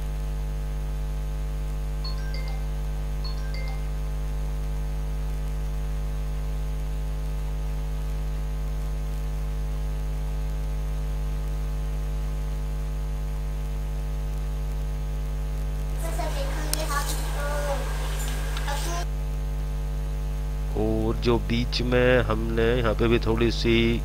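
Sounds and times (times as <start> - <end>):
electrical mains hum: 0.0 - 9.2, 13.3 - 24.0
static hiss: 15.8 - 19.5.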